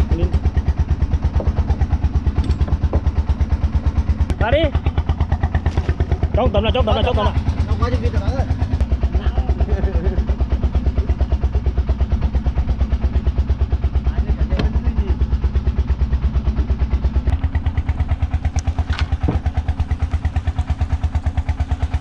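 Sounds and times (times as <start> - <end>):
boat engine chugging: 0.0 - 22.0
short knocks: 18.9 - 19.6.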